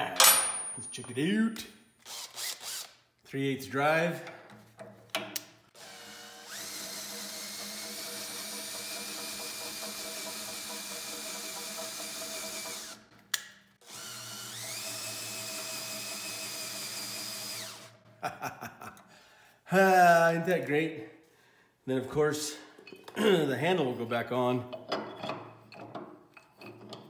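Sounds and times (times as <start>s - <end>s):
cordless drill spinning: 2.0s - 3.0s, 5.7s - 13.0s, 13.8s - 18.0s.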